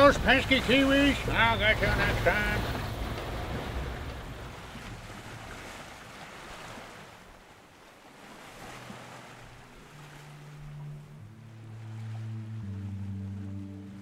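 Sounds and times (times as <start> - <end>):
sea waves: 0.0 - 14.0
wind: 0.0 - 14.0
low steady tone: 9.0 - 14.0.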